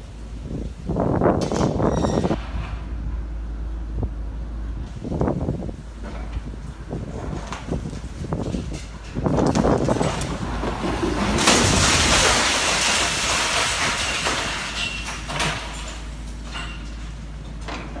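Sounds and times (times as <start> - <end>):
crashing and scraping: 6.0 - 18.0
concrete wall collapsing onto rubble: 7.0 - 18.0.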